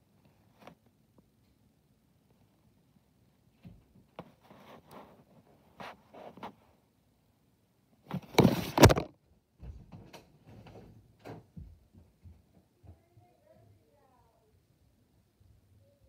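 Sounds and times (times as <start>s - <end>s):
camera handling rustles and scrapes: 8.1s - 9.1s.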